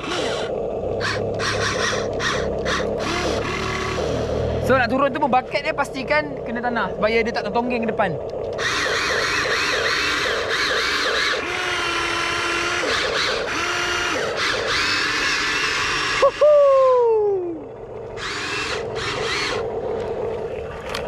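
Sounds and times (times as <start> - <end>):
gritty gear whirr: 0.0 - 5.2, 7.7 - 16.4, 18.2 - 20.3
electric motors whining: 0.0 - 21.0.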